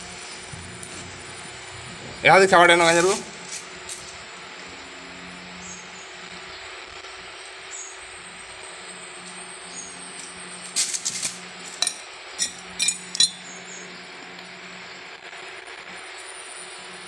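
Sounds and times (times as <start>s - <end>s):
steady low hum: 0.0s - 17.0s
sharp ringing clinks: 11.7s - 13.6s.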